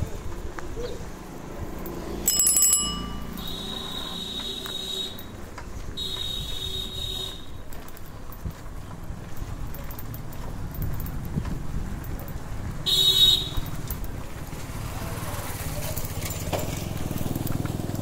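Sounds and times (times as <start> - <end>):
street traffic rumble: 0.0 - 18.0
bicycle bell ringing: 1.7 - 5.4, 12.0 - 14.4.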